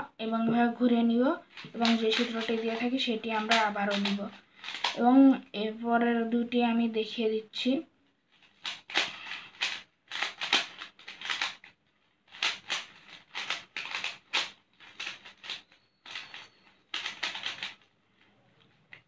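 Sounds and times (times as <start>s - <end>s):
puzzle cube clicking and rattling: 1.5s - 5.0s, 8.3s - 19.0s.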